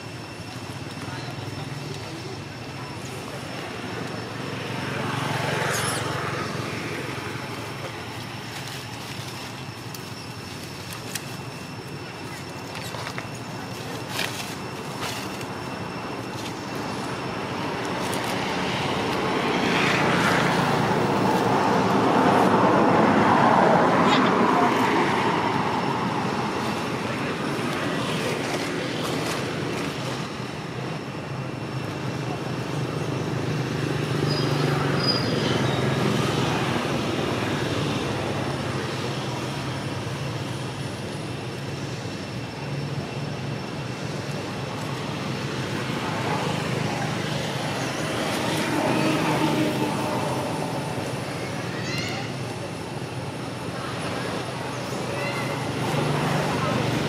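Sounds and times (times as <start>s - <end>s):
road traffic: 0.0s - 57.0s
vehicle passing by: 45.0s - 51.7s.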